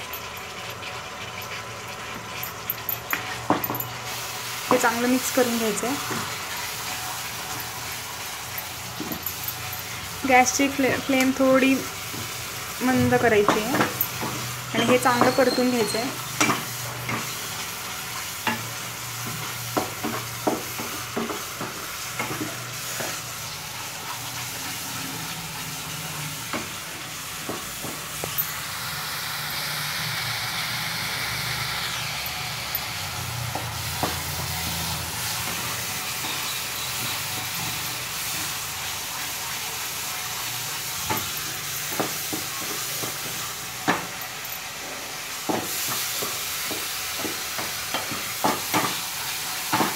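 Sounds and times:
mixture sizzling in a pan: 0.0 - 49.9.

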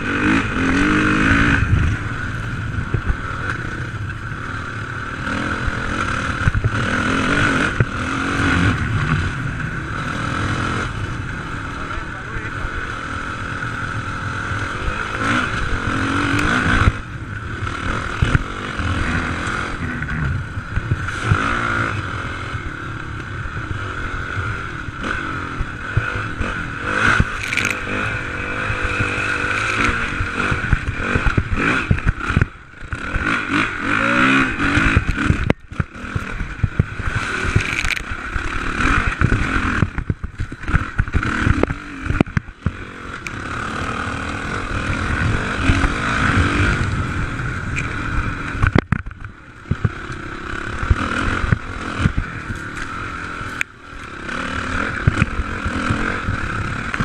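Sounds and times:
motorcycle engine revving: 0.0 - 57.0
motorcycle scraping and clattering: 25.0 - 57.0.

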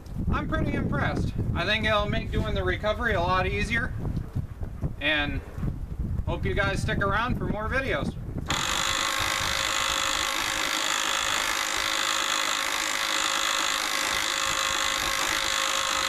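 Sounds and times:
electric winch motor whining: 8.5 - 16.0.

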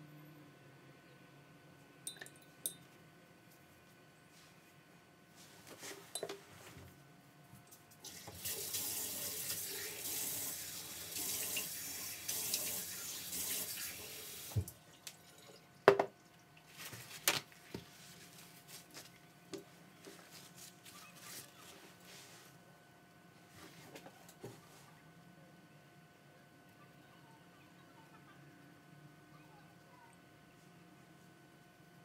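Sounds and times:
water running from a tap: 8.0 - 14.8.

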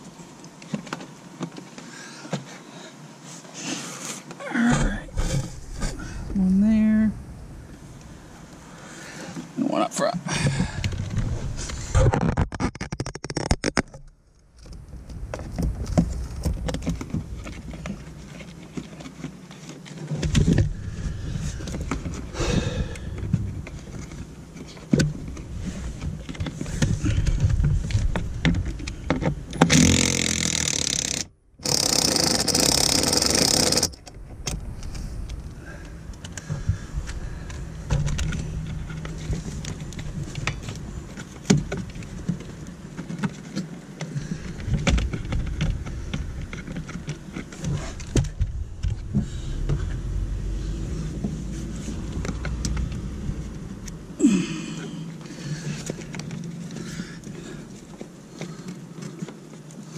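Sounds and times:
clicks and knocks of handling: 10.8 - 20.7, 36.1 - 49.8
cordless screwdriver whining: 29.6 - 34.0.

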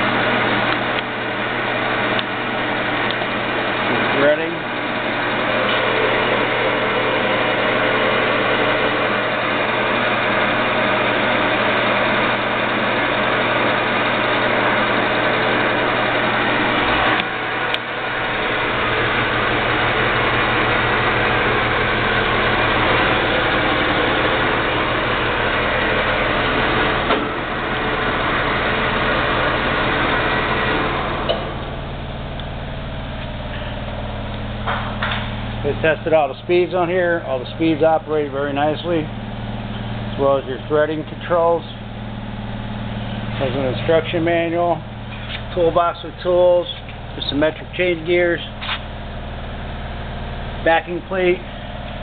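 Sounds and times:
metal lathe whirring: 0.0 - 52.0
lathe speed change click: 0.4 - 1.4, 2.0 - 3.9, 4.8 - 20.5, 30.8 - 32.6.

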